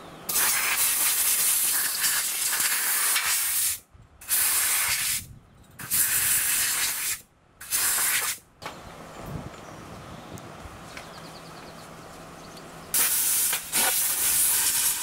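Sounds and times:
compressed air hissing: 0:00.3 - 0:08.4, 0:12.9 - 0:15.0.

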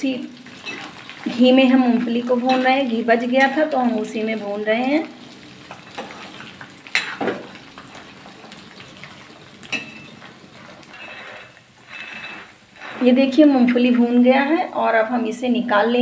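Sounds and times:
peanuts sizzling in oil: 0:00.0 - 0:15.5
ladle scraping pan: 0:09.7 - 0:13.6.

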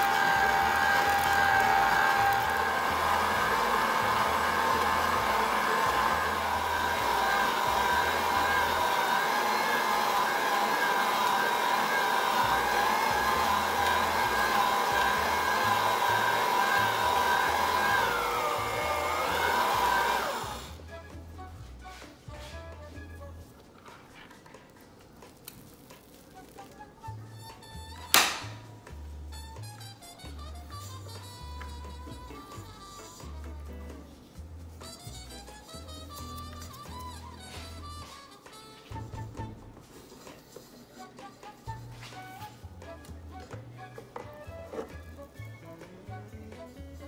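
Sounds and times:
stand mixer motor whining: 0:00.0 - 0:20.8.

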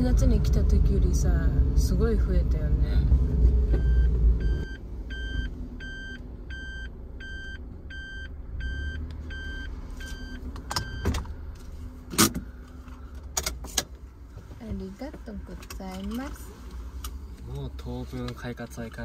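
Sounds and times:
car engine running: 0:00.0 - 0:19.0
car warning beeper: 0:03.7 - 0:11.2.

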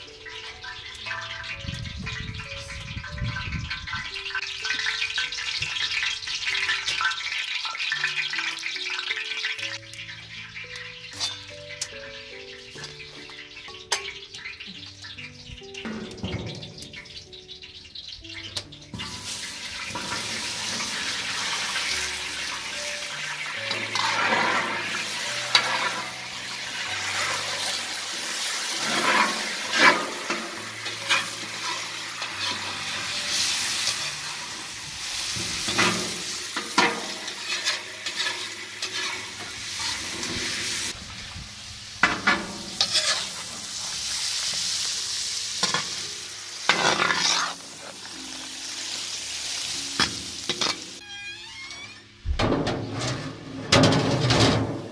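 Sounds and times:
meat sizzling in hot oil: 0:00.0 - 0:51.6
metal spatula scraping pan: 0:11.1 - 0:11.6, 0:23.3 - 0:41.0, 0:42.0 - 0:44.8, 0:45.6 - 0:48.5, 0:50.0 - 0:54.9.

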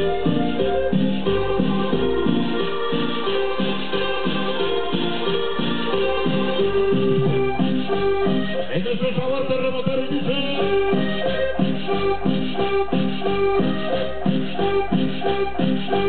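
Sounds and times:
accordion cumbia over sound system: 0:00.0 - 0:16.0
steady bass beat: 0:00.0 - 0:16.0
shaker percussion: 0:14.2 - 0:16.0.

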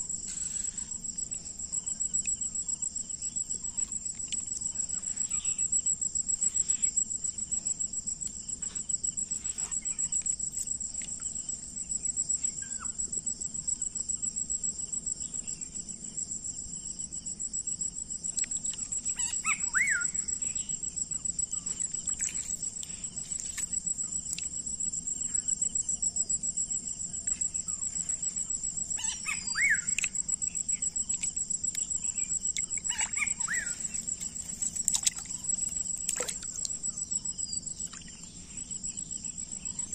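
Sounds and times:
insects trilling: 0:00.0 - 0:39.9
bird chirps: 0:18.6 - 0:20.8, 0:27.7 - 0:39.9.

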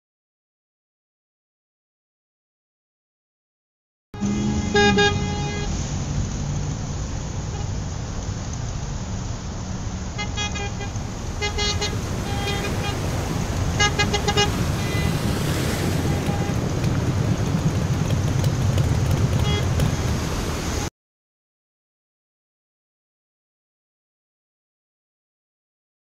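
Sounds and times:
car horns honking: 0:04.2 - 0:05.9, 0:07.4 - 0:07.8, 0:10.1 - 0:16.7, 0:19.4 - 0:19.9
street traffic rumbling: 0:04.2 - 0:20.9.

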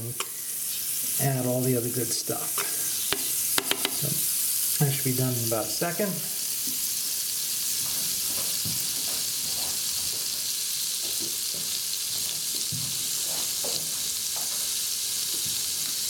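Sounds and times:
butter sizzling in a pot: 0:00.0 - 0:16.0
small pops: 0:02.6 - 0:04.2.

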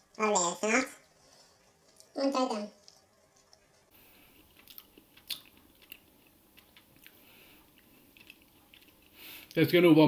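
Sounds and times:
chewing mouth clicks: 0:04.5 - 0:09.6.

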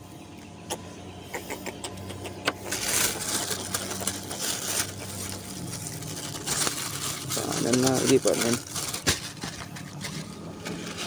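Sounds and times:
steady low motor hum: 0:00.0 - 0:11.0
plastic bag rustling: 0:02.6 - 0:11.0.

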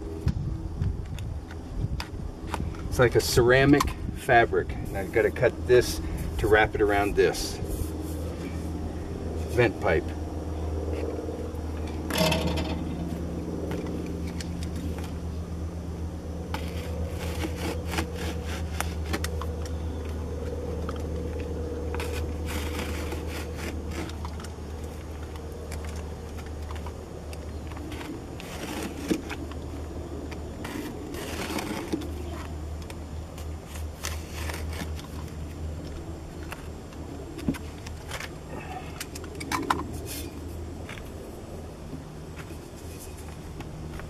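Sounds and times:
steady low hum: 0:00.0 - 0:44.0
foil mat crinkling and scraping: 0:16.4 - 0:38.9
utility knife cutting: 0:16.5 - 0:19.5, 0:22.0 - 0:24.4.

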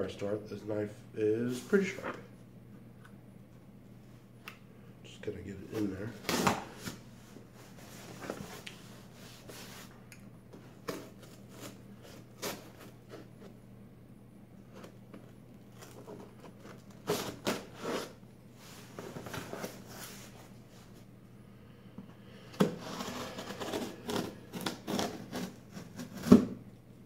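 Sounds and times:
cardboard scraping and rustling: 0:05.7 - 0:09.9, 0:10.6 - 0:13.6, 0:14.7 - 0:21.0, 0:22.6 - 0:26.6
knife slicing packing tape: 0:22.9 - 0:26.4.

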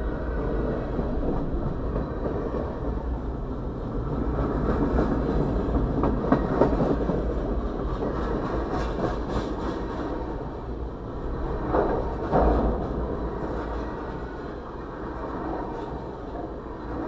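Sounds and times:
train wheels rumbling on rails: 0:00.0 - 0:17.0
train car clunks: 0:11.6 - 0:14.5.

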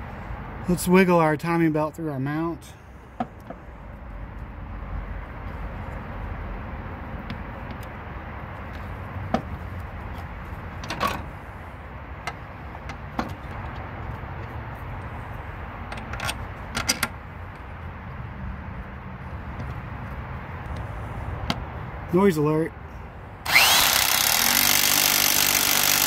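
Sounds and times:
clicks and knocks of engine parts: 0:08.6 - 0:11.3, 0:12.2 - 0:14.6, 0:15.8 - 0:17.7.

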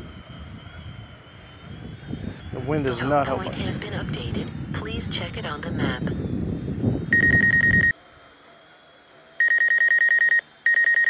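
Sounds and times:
electronic ringing tone: 0:07.1 - 0:08.0, 0:09.4 - 0:11.0.

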